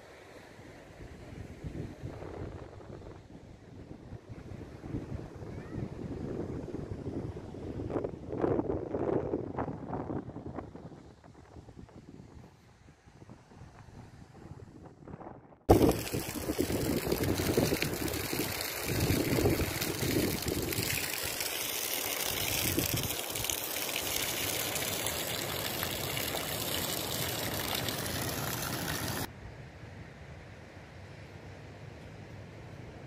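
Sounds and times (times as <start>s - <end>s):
water gushing from shower pipe: 15.7s - 29.3s.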